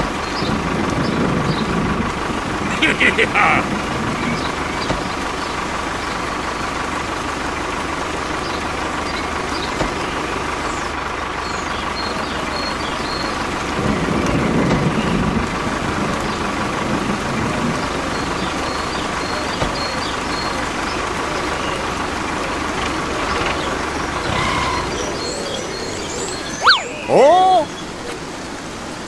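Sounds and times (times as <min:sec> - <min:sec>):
tractor engine running: 0:00.0 - 0:27.1.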